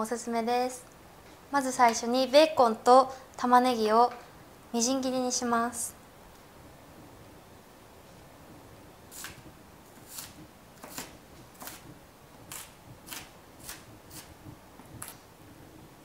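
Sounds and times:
knife chopping on cutting board: 12.5 - 14.4.

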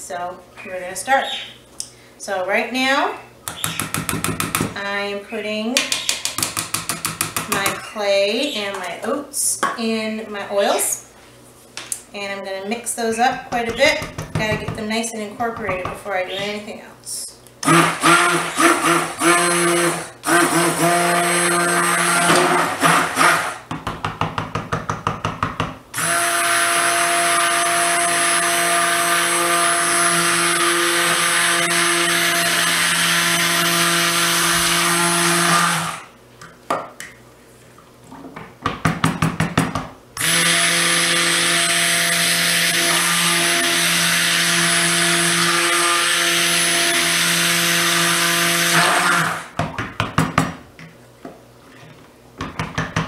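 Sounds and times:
electric stick blender running: 17.6 - 23.7, 26.0 - 36.1, 40.2 - 49.6.

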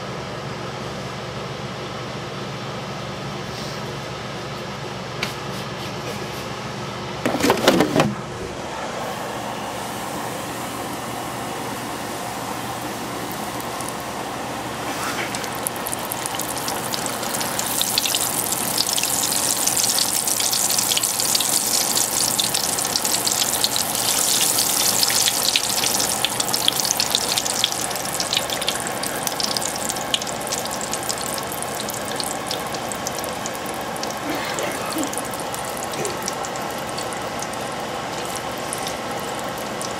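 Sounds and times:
food sizzling in hot oil: 12.1 - 34.4, 35.1 - 39.9.

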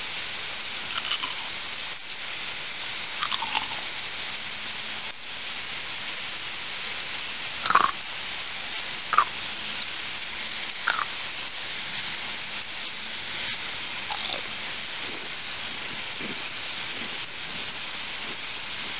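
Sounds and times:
potatoes sizzling in oil: 0.8 - 1.8, 3.1 - 4.0, 7.3 - 9.5, 10.8 - 11.2, 13.8 - 18.9.

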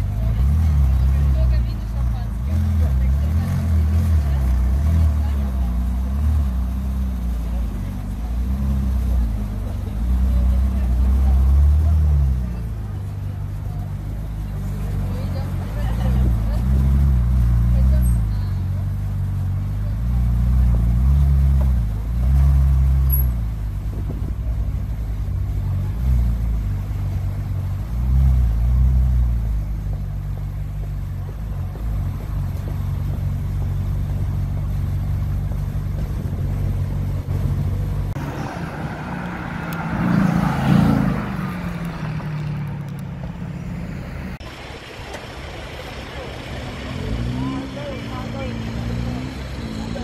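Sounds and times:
car engine idling and revving: 0.0 - 50.0
car driving past: 37.0 - 50.0.

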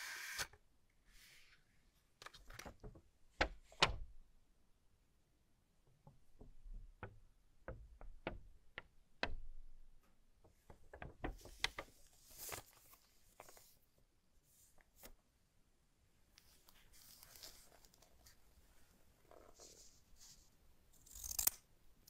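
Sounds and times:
paper rustling: 11.2 - 13.8, 16.4 - 18.4.

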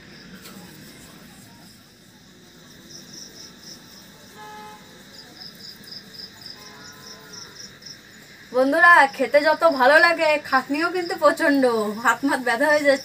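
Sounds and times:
cricket chirping: 0.0 - 13.0
horn toot: 4.2 - 5.1, 6.5 - 7.6.

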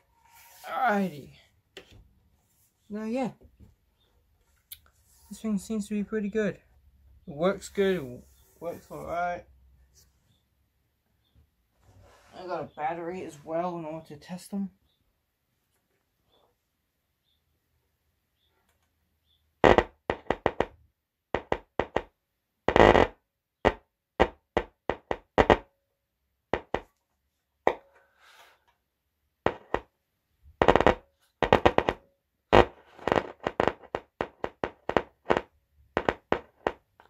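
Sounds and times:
speaker popping and crackling: 19.6 - 22.1, 22.7 - 25.7, 29.5 - 29.9, 30.6 - 37.0.

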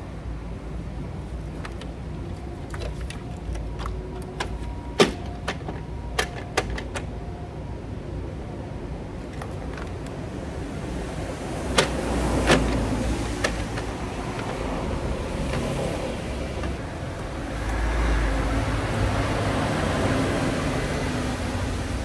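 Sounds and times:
steady background noise: 0.0 - 22.0.

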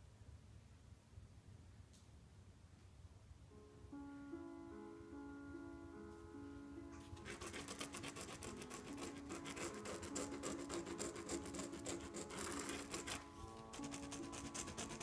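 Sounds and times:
tool scrubbing on canvas: 7.2 - 15.0.

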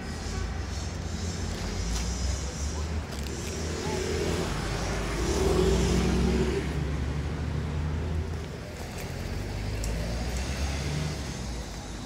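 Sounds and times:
noisy outdoor background: 0.0 - 12.0
vehicle engine rumbling: 0.0 - 12.0.

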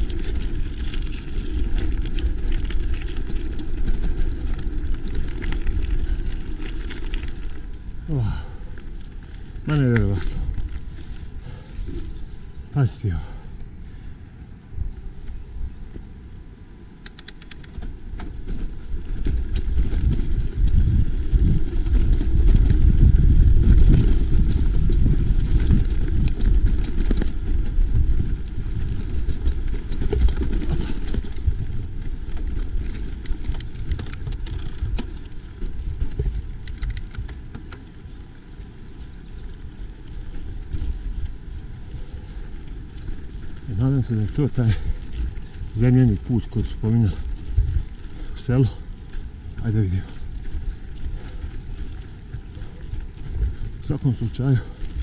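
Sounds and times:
mountain bike rumbling on rough track: 0.0 - 16.8, 17.4 - 55.0
sharp clicks: 17.0 - 17.9.

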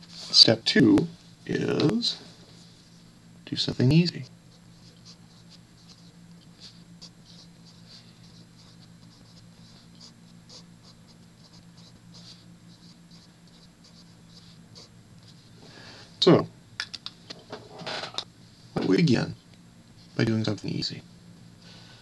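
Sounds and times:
steady low hum: 0.0 - 22.0
pen scratching on paper: 4.7 - 14.9.

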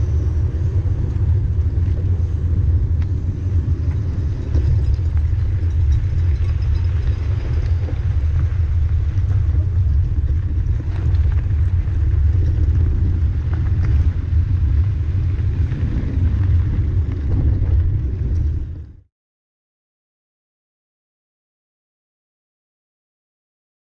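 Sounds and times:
wind rumbling on microphone: 0.0 - 19.1.

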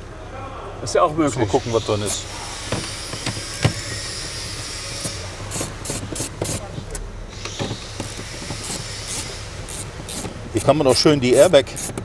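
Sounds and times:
steady low hum: 1.5 - 12.0
scrapes and clicks of hand tools: 3.2 - 3.9, 5.0 - 6.6, 8.0 - 12.0.

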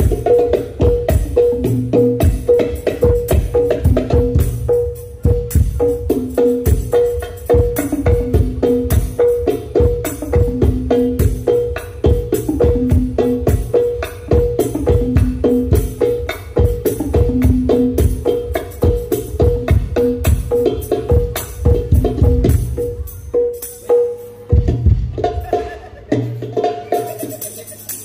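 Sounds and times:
hand drums playing fast rhythm: 0.0 - 28.0
sharp drum slaps: 21.2 - 22.9.

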